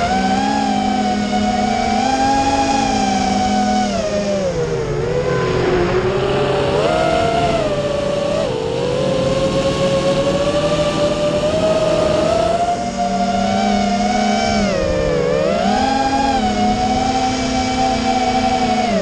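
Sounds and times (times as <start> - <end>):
quadcopter motors whining: 0.0 - 19.0.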